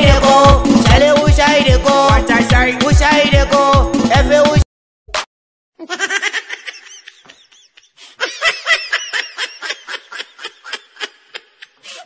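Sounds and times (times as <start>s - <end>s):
person laughing: 5.8s - 12.0s.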